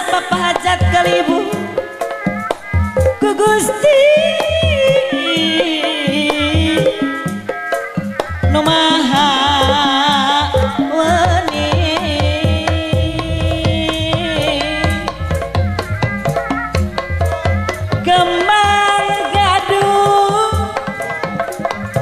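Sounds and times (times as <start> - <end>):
metallophones: 0.0 - 22.0
wavering melodic line: 12.9 - 19.6.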